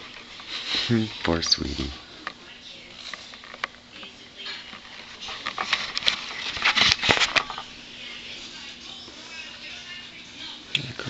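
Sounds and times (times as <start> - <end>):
plastic collar scraping tile floor: 4.5 - 7.7.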